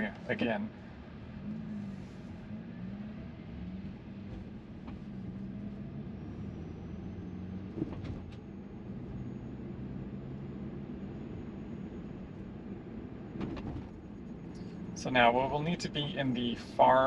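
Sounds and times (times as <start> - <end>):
road and tyre hum in car: 0.0 - 17.0.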